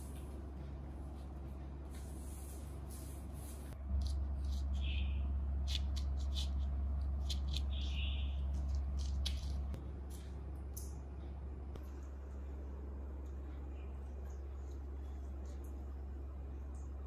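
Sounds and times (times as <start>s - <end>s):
broom swishing on tiled floor: 1.2s - 3.8s.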